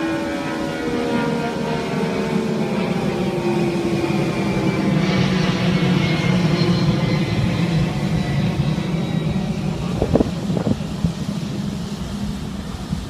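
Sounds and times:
waterfall roaring: 0:08.7 - 0:13.0.

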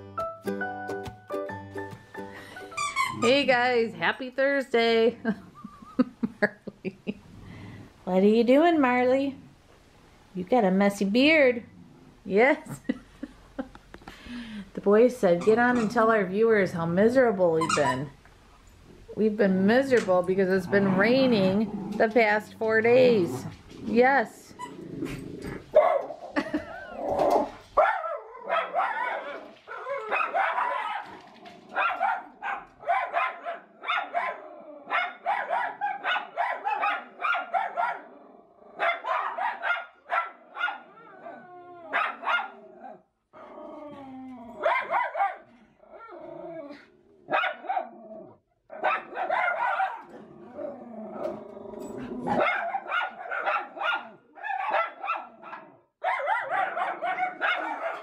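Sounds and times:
dogs barking: 0:25.6 - 0:26.2, 0:27.8 - 0:38.1, 0:38.8 - 0:41.0, 0:41.9 - 0:43.0, 0:44.6 - 0:45.5, 0:47.3 - 0:48.0, 0:48.7 - 0:50.2, 0:52.3 - 0:58.0.

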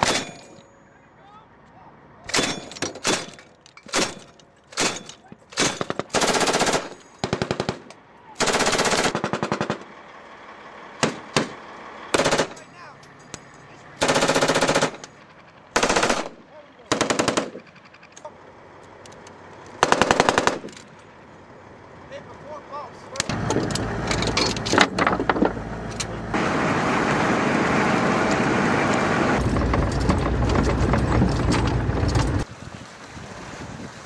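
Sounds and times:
machine gun bursts: 0:02.3 - 0:09.8, 0:12.1 - 0:12.6, 0:14.0 - 0:15.1, 0:15.7 - 0:18.0, 0:19.8 - 0:20.7.

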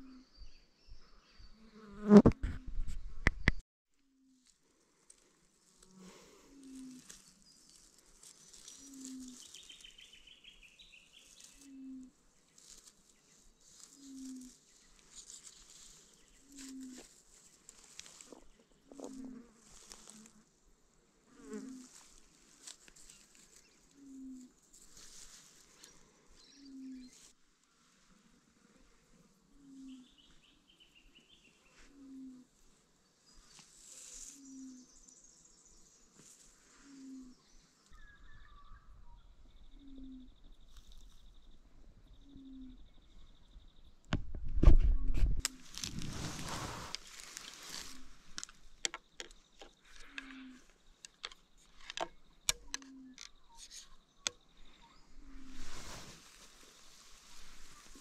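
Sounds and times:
low animal hoot: 0:39.7 - 0:40.4.

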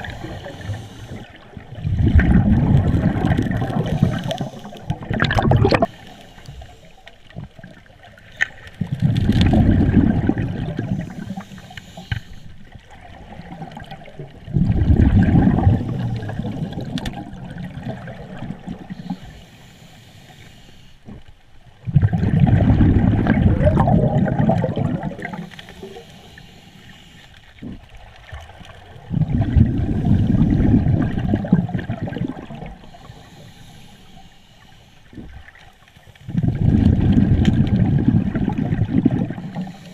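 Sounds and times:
quiet inhalations through regulator: 0:00.0 - 0:14.0, 0:15.2 - 0:21.9, 0:23.2 - 0:28.0, 0:29.0 - 0:39.9
exhaled air bubbling underwater: 0:00.0 - 0:20.4, 0:21.0 - 0:34.4, 0:35.0 - 0:39.9.

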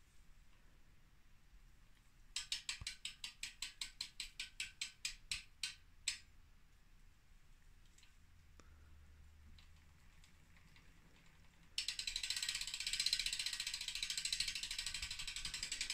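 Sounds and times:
bicycle freewheel ratchet clicking: 0:02.3 - 0:06.3, 0:09.6 - 0:15.9.

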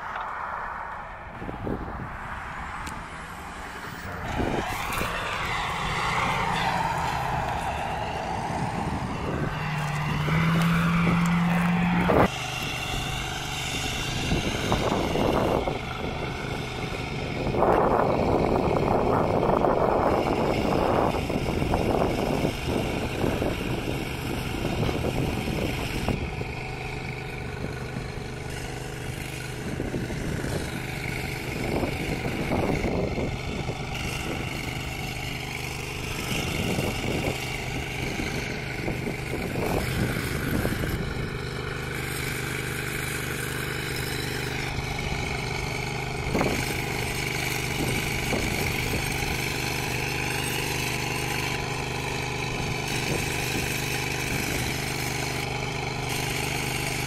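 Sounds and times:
rushing noise: 0:00.0 - 0:15.4
rising tone: 0:00.0 - 0:15.7
truck engines humming: 0:00.0 - 0:57.0.

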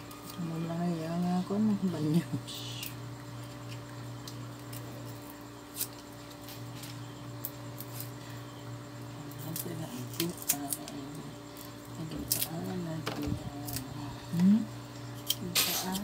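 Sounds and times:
steady low hum: 0:00.0 - 0:16.0
knife peeling garlic: 0:02.8 - 0:08.2, 0:09.3 - 0:12.7.

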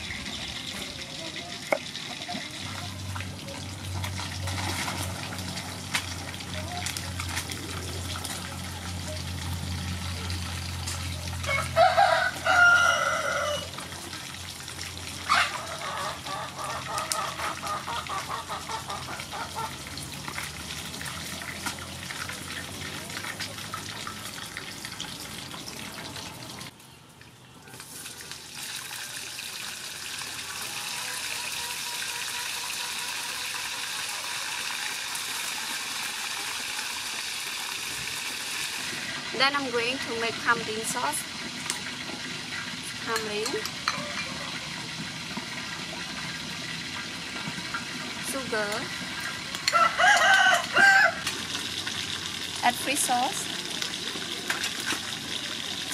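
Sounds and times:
oil sizzling in a wok: 0:05.4 - 0:17.5, 0:27.7 - 0:55.9
rooster crowing: 0:11.4 - 0:13.8, 0:49.6 - 0:51.3.

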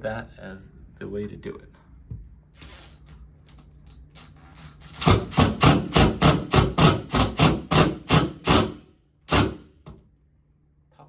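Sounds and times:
screw gun knocking: 0:04.8 - 0:09.7.

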